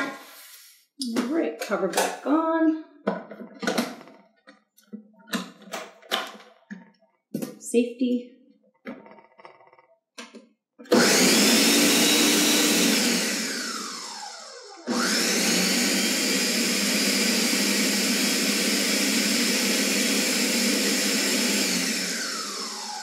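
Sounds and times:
blender motor running: 10.9 - 23.0.

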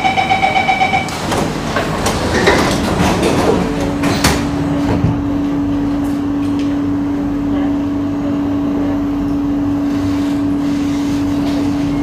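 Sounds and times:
train doors closing: 0.0 - 5.3.

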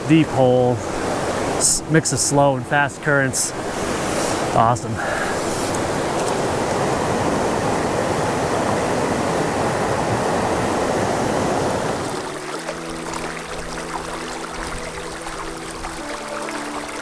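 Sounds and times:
creek water rushing: 0.0 - 17.0
soft instrumental music: 12.0 - 17.0.

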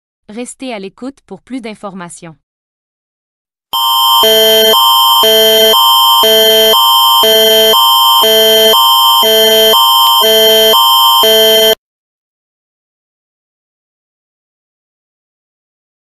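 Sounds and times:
constant high tone: 3.8 - 11.8
harsh multi-tone emergency alarm: 3.8 - 11.8.

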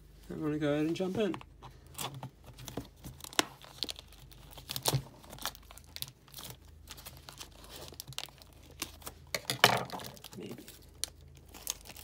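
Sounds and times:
packaging crinkling and tearing: 1.2 - 12.0
scissors cutting plastic wrap: 3.1 - 12.0.

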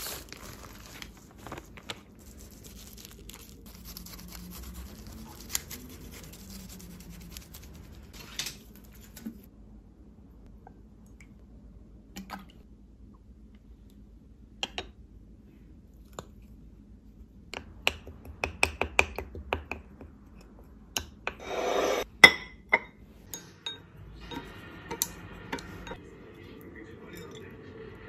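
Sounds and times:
chopsticks scraping bowl: 21.4 - 22.1.

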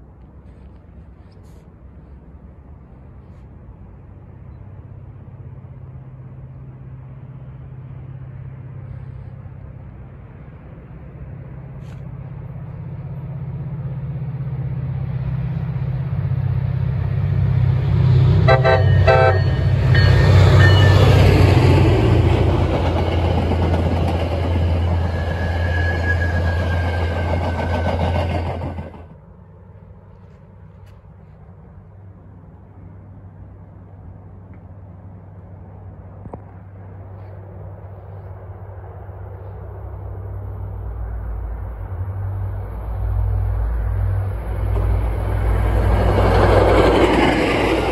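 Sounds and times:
train approaching and passing: 0.0 - 47.9
wheels rumbling on rails: 0.0 - 47.9
train horn toots: 18.4 - 21.2.

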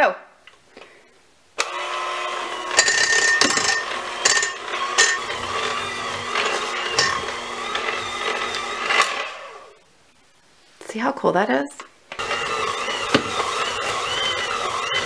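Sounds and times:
electric hand mixer running: 1.6 - 9.8, 12.1 - 15.0.

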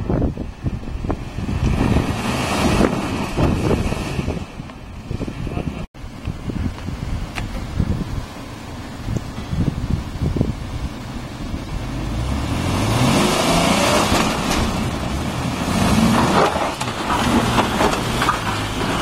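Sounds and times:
engine revving hard: 1.4 - 4.4, 11.8 - 19.0
tyres spinning in dirt: 11.0 - 19.0.

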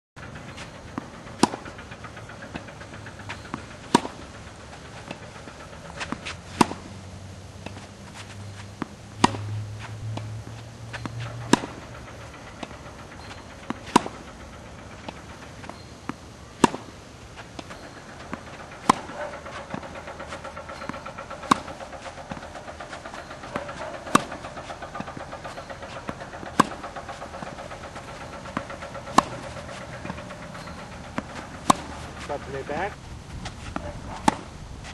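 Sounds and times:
ball bouncing: 0.2 - 34.5
steady engine-like hum: 0.2 - 34.9
tennis racquet striking ball: 0.2 - 34.9
low rumble: 8.9 - 16.0.

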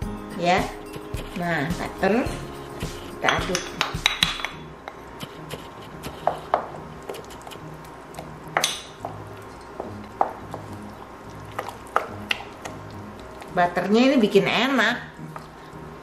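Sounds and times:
spoon stirring batter in metal bowl: 8.2 - 13.8.

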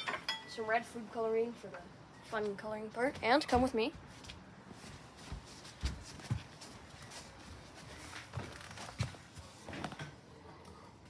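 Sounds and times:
footsteps on floor: 3.5 - 10.0.

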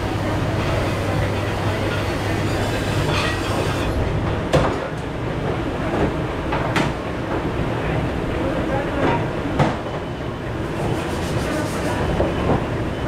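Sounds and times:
steady machine drone: 0.0 - 4.5
dishware clanking: 0.6 - 4.0.

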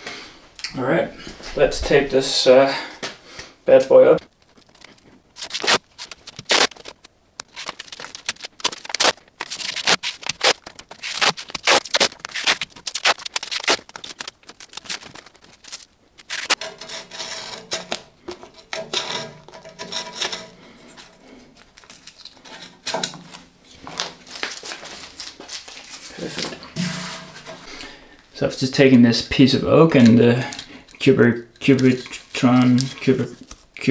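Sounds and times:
tape rustling pressed by hand: 3.8 - 28.0, 29.8 - 33.9
tape ripping off a roll: 4.4 - 27.7.

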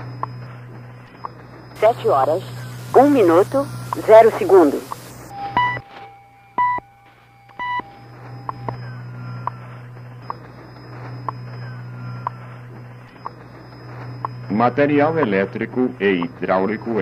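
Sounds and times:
steady low hum: 0.0 - 17.0
radio ticking: 1.2 - 5.3, 13.1 - 17.0
radio time signal pips: 1.2 - 5.8, 7.5 - 17.0.

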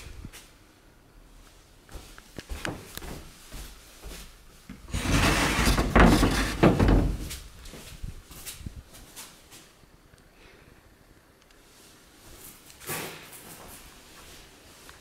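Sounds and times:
sliding door rumbling on wooden track: 4.9 - 7.3.

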